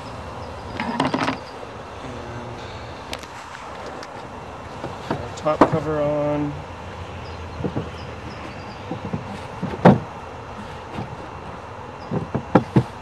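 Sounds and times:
dull wooden knocks: 0:03.8 - 0:05.9, 0:07.5 - 0:13.0.

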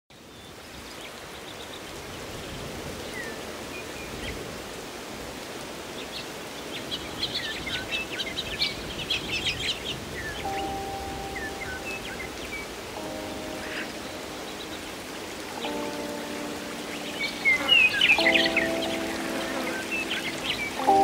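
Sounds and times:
outdoor hiss: 0:00.2 - 0:21.0
birds chirping: 0:06.0 - 0:21.0.

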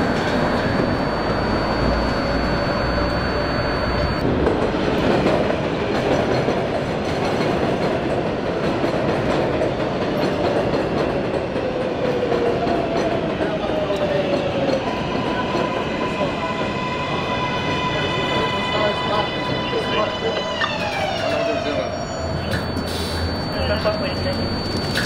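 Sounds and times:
faint train whine: 0:00.0 - 0:04.2, 0:16.0 - 0:25.0
subway train rumble and clatter: 0:00.0 - 0:25.0.

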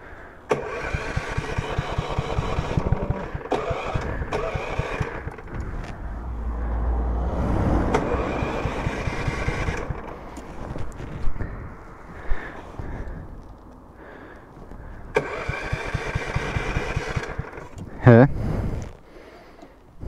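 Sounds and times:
kart engine chugging: 0:00.5 - 0:06.2, 0:07.9 - 0:11.7, 0:15.1 - 0:18.3.

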